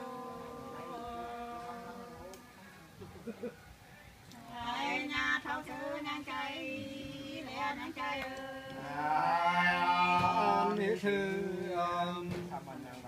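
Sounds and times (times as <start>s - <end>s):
two voices singing folk song: 0.0s - 2.5s, 4.4s - 12.5s.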